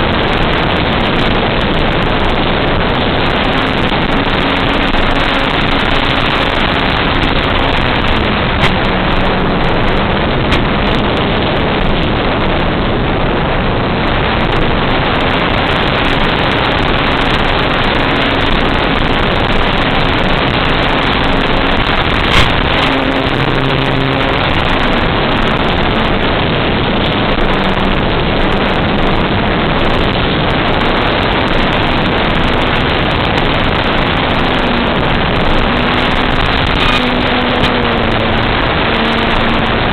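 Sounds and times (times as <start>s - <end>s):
rc plane propeller and wind rushing: 0.0s - 39.9s
sharp crackle: 0.0s - 39.9s.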